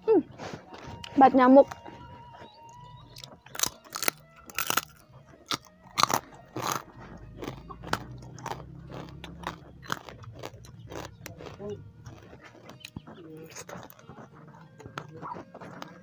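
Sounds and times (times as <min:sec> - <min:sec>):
cracker crunching: 0:00.7 - 0:16.0.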